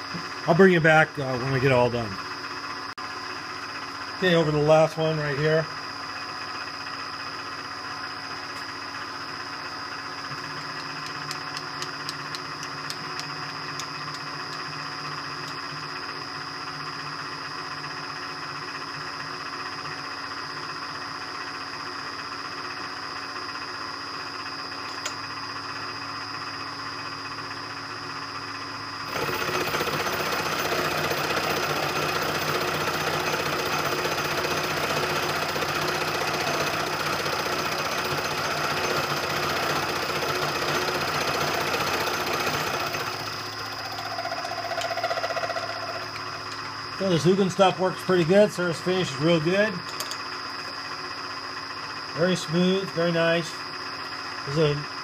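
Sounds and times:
milling spindle whine: 0.0 - 55.0
metal cutting noise: 29.1 - 47.7.

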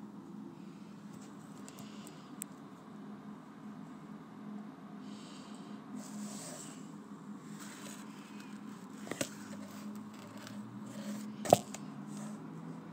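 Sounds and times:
phone handling rubbing and scraping: 7.5 - 12.4.

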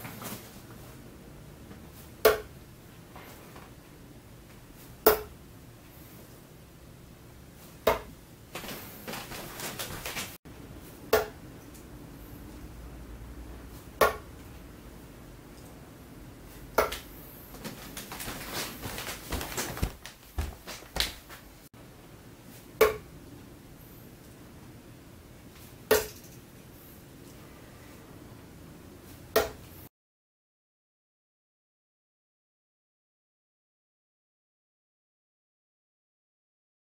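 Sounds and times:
darts thudding into dartboard: 2.2 - 2.5, 5.0 - 5.3, 7.8 - 8.1, 11.1 - 11.4, 14.0 - 14.3, 16.8 - 17.1, 22.8 - 23.1, 25.9 - 26.2, 29.3 - 29.6
light scuffing and clicking: 16.9 - 21.5.

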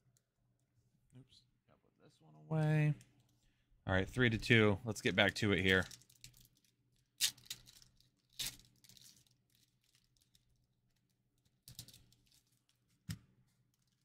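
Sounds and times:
foil wrapper tearing and crinkling: 7.2 - 10.4.

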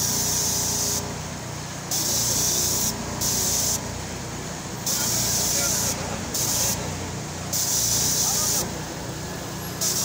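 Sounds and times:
sprayer nozzle hissing mist: 1.9 - 3.8, 4.8 - 6.9, 7.5 - 8.7, 9.8 - 10.0.

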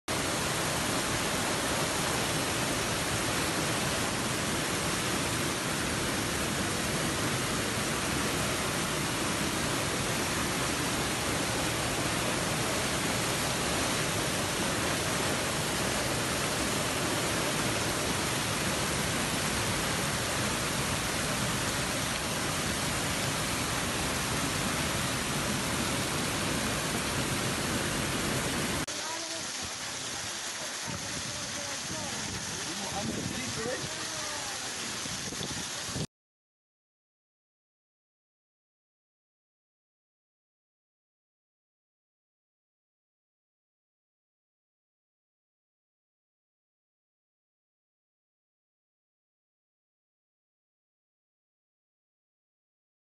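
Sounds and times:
floodwater rushing: 0.1 - 36.1.

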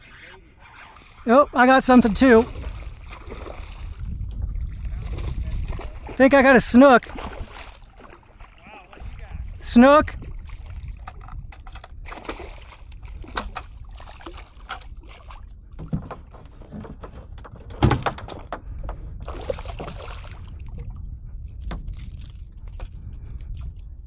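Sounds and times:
water splashes: 0.8 - 11.3, 12.0 - 15.5, 19.2 - 21.0
steady low rumble: 1.4 - 15.8, 18.6 - 24.0
knocks and clicks from kayak: 10.1 - 20.9, 21.6 - 23.8.

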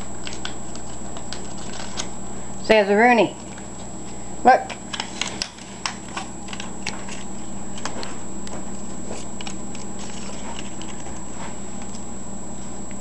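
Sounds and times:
parrot tearing and crumpling paper: 0.0 - 2.1.

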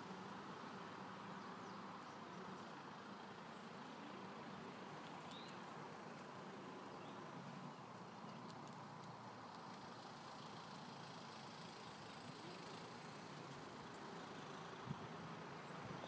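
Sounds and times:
faint outdoor background noise: 0.0 - 16.0.

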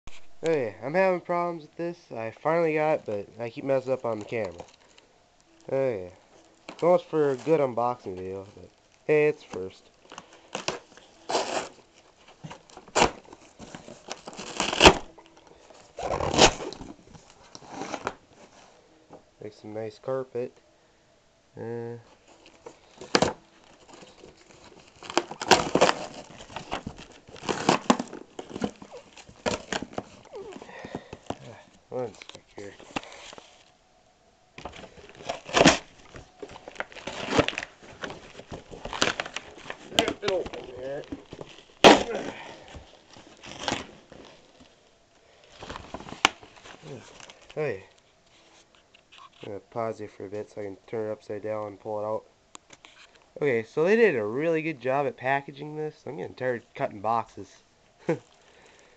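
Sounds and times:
cardboard packaging crinkling: 5.6 - 18.8, 22.0 - 33.8, 34.6 - 49.6.

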